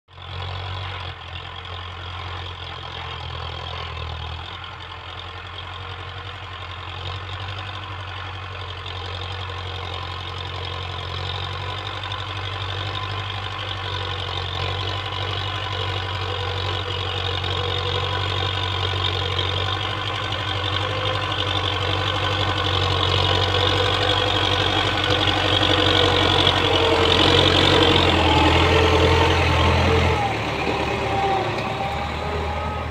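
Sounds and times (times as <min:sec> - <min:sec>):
diesel tractor engine running: 0:00.1 - 0:32.9.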